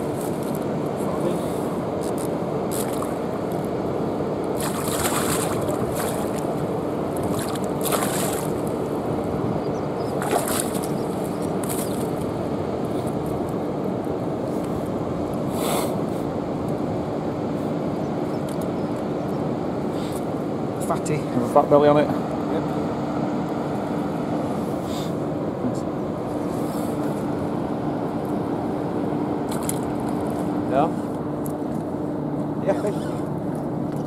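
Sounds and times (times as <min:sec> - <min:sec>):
river rushing: 0:00.0 - 0:12.6
water sloshing and splashing: 0:02.0 - 0:03.7, 0:04.5 - 0:09.1, 0:10.0 - 0:12.4, 0:29.5 - 0:30.5.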